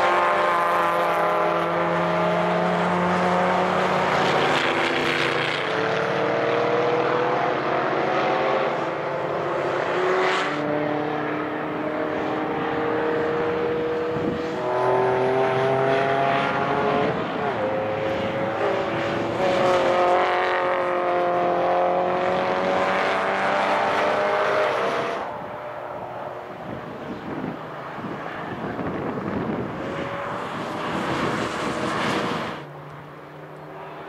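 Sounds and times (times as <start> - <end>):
racing car engines at high revs: 0.0 - 34.0
wind noise on microphone: 13.3 - 14.8, 24.8 - 32.6.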